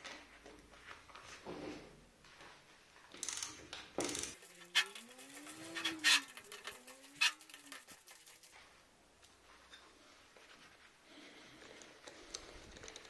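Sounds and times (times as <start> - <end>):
ratchet wrench clicking: 3.2 - 4.4
squeak rising and falling: 4.6 - 7.4.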